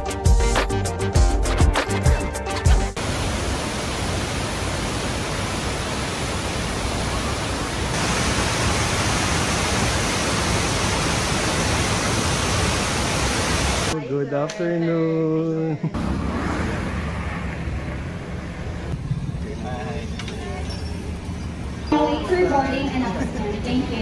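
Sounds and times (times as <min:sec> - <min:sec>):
waterfall rushing: 0:03.0 - 0:14.0.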